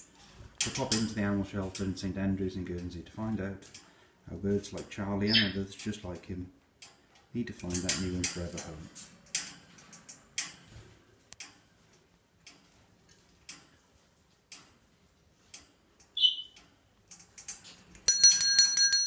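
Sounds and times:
small bell rung rapidly: 18.1s - 19.0s.

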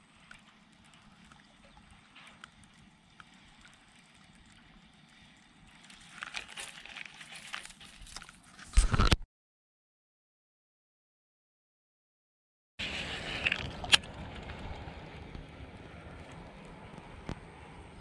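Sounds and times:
faint ticks: 0.0s - 6.4s
fishing reel clicks and rustling: 0.2s - 9.2s, 13.1s - 14.5s.

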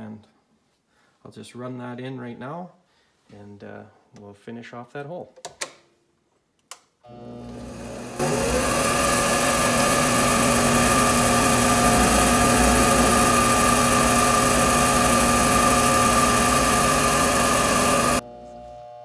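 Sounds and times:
metal lathe whining: 7.5s - 18.2s.

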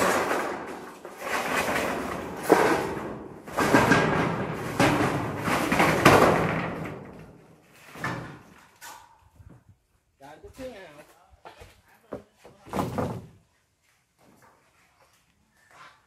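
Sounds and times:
metal roofing sheet scraping: 0.0s - 9.5s.

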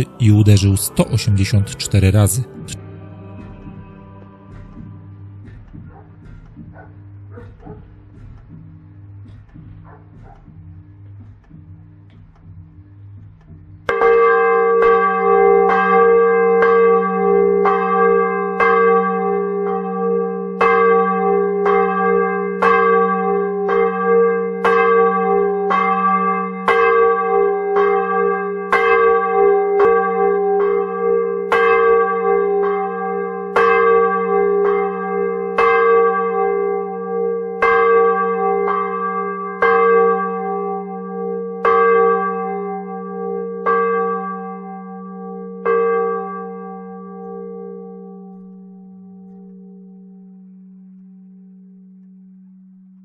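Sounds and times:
church bell ringing: 0.0s - 2.8s, 13.8s - 52.9s.

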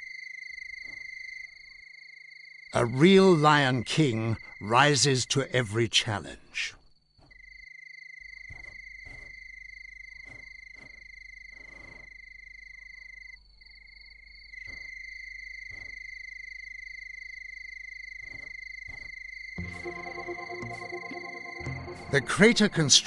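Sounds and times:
faint higher tone: 19.6s - 23.0s.

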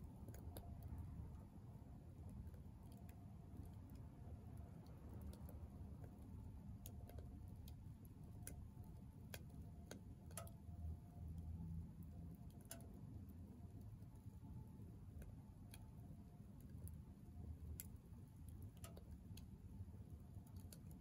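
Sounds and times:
low steady rumble: 0.0s - 21.0s.

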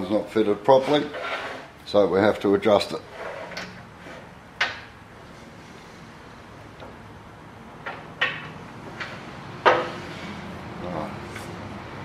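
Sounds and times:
metal clicks and knocks: 7.8s - 9.9s.

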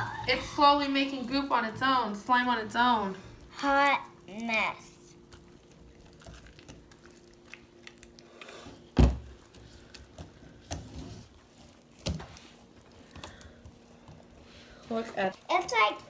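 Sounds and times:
slime handling noises: 3.2s - 15.9s.

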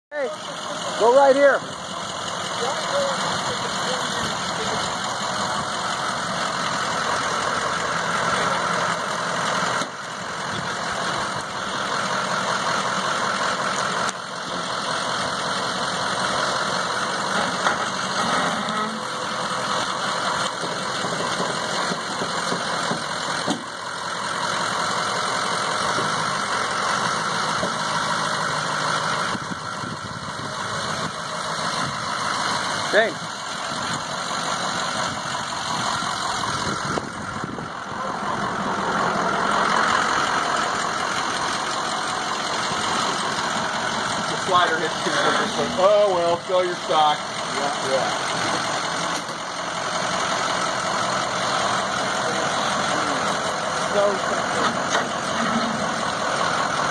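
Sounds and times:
truck engine idling: 0.1s - 56.9s.

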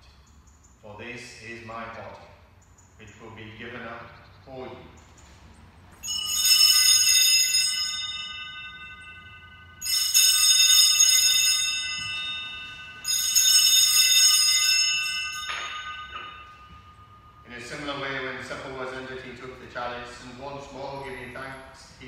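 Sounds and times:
altar bells ringing: 5.9s - 22.0s.

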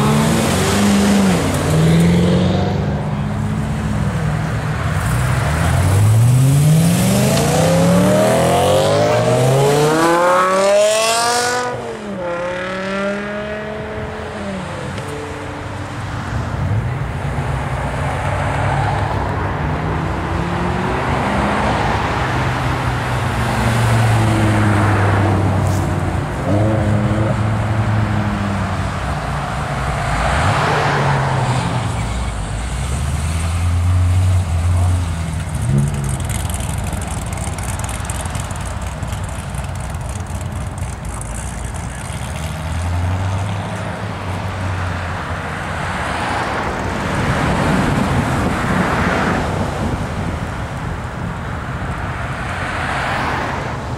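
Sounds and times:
cars accelerating away: 0.0s - 15.6s, 29.6s - 49.6s
road traffic hum: 0.0s - 53.9s.

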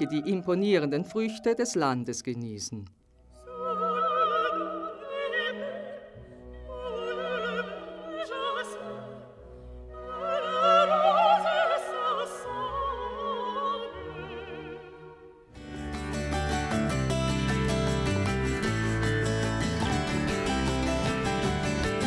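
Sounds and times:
operatic voice singing: 0.0s - 2.3s.

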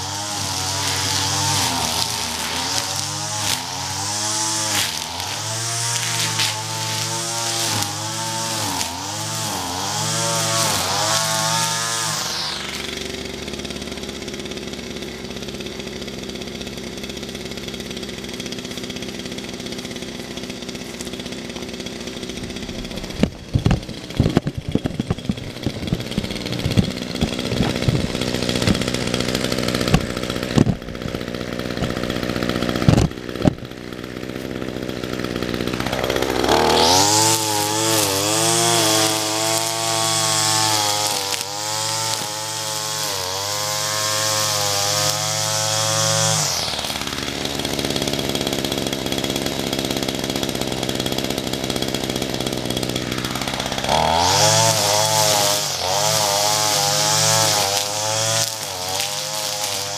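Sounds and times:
string trimmer engine revving: 0.0s - 59.9s
sharp clicks and knocks: 23.1s - 29.0s, 29.8s - 31.2s, 32.8s - 33.7s.

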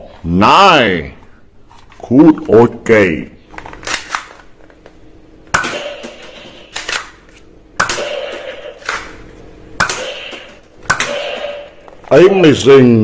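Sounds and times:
toy pistol shot snapping: 7.8s - 9.1s, 9.8s - 11.5s.

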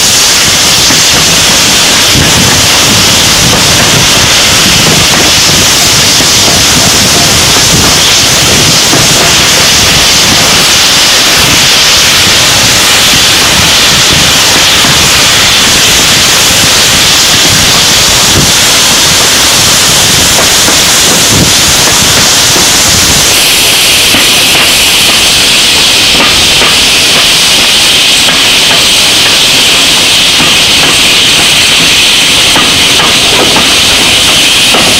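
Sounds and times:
wind rushing over microphone: 0.0s - 27.0s
train running noise: 0.0s - 34.9s.

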